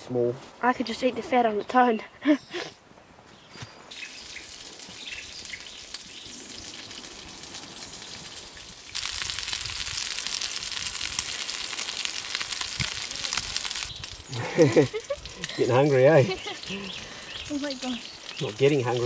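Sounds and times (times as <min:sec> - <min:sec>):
fat sizzling and crackling: 0:03.9 - 0:19.0
meat frying in hot fat: 0:03.9 - 0:19.0.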